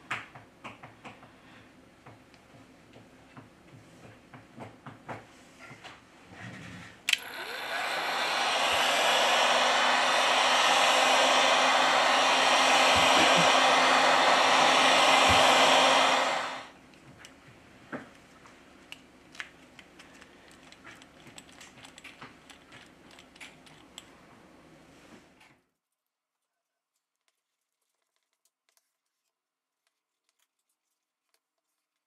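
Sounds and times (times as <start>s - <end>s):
heat gun blowing: 7.1s - 16.7s.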